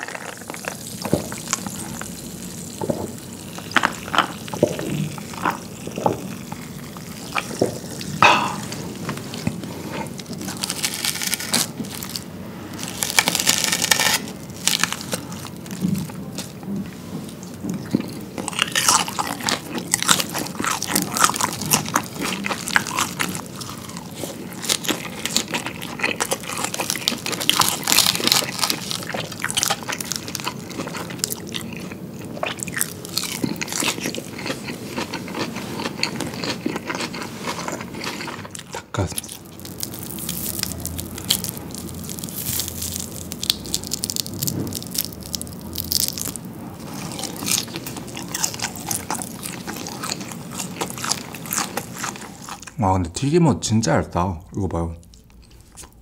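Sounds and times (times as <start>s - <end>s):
crunchy chewing: 0.0s - 52.8s, 55.0s - 56.0s.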